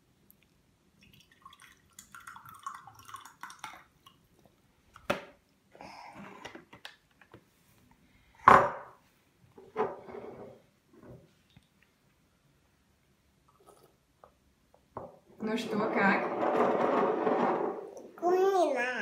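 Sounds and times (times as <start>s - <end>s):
liquid pouring and splashing: 1.0s - 4.3s.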